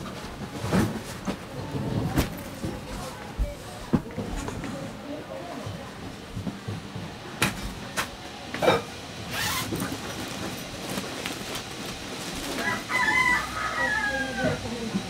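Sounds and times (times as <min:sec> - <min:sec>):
bag and clothes rustling: 0:09.3 - 0:12.8.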